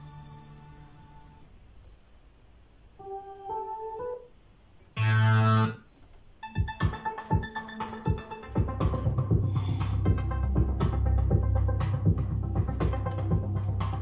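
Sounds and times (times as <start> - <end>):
electronic beat with sharp hits: 6.4 - 14.0
synthesizer notes stepping upward: 6.4 - 14.0.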